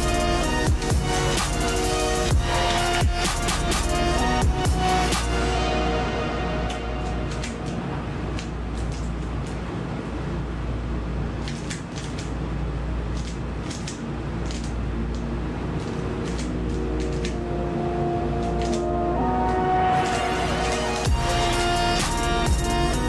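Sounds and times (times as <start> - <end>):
electronic music: 0.0 - 11.1, 12.6 - 23.0.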